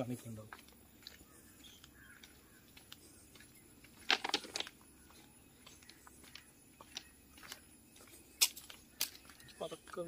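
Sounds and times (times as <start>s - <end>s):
footsteps crunching on ballast: 0.0s - 10.0s.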